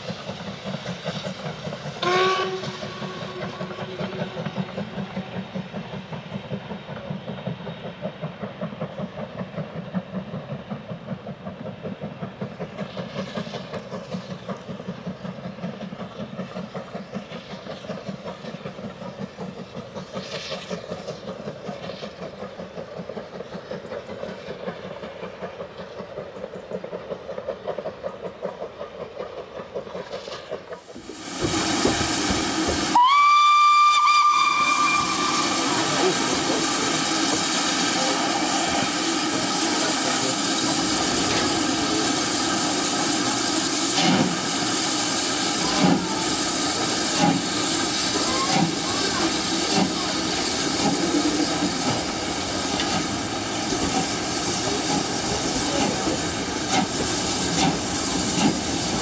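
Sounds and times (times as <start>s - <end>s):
distant steam locomotive exhaust beats: 0.0s - 59.0s
steam hiss: 0.0s - 59.0s
steam whistle: 2.0s - 4.3s, 32.9s - 36.1s.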